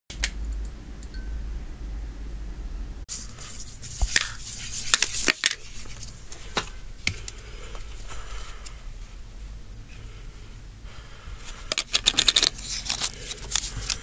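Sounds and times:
low steady hum: 0:00.1 - 0:14.0
plastic objects clicking on wood: 0:11.7 - 0:14.0.

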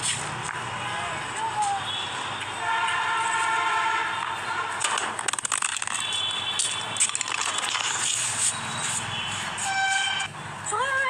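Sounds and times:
handling noise on microphone: 0:04.8 - 0:10.3.

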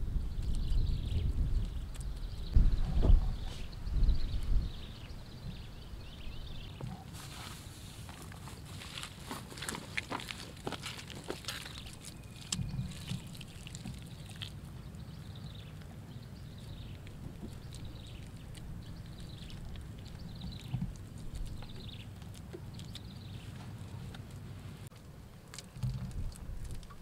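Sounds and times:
hands patting wet plaster: 0:08.1 - 0:14.6.

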